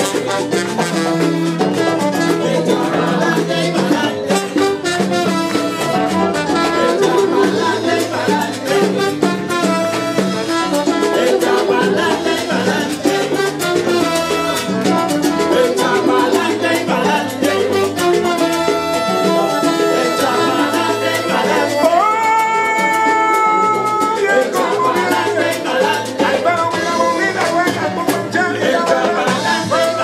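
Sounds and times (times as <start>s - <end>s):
trombones: 0.0s - 12.3s, 12.9s - 22.0s
latin percussion: 0.0s - 30.0s
salsa band playing: 0.0s - 30.0s.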